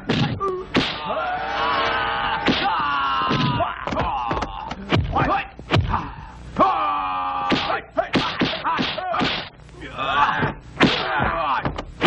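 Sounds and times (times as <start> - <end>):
punch and kick impacts: 0.1 - 1.1, 2.4 - 4.2, 4.9 - 6.0, 7.5 - 9.5, 10.8 - 11.8.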